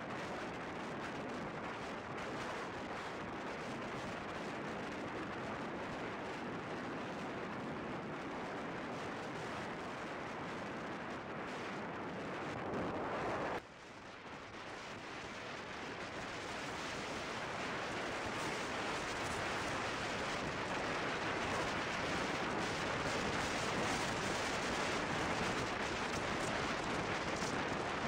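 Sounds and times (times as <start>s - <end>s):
wind buffeting microphone: 14.5s - 28.0s.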